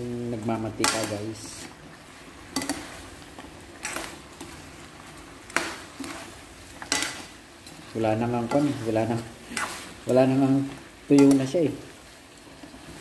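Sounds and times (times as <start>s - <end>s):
meat sizzling: 0.0s - 13.0s
spatula scraping a pan: 2.5s - 11.5s.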